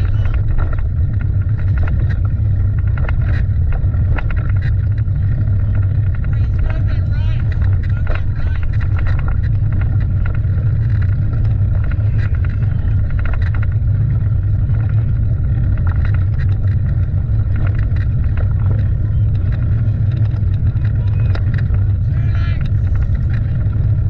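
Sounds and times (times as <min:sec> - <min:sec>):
low rumbling noise: 0:00.0 - 0:24.0
faint shouts: 0:22.0 - 0:22.8.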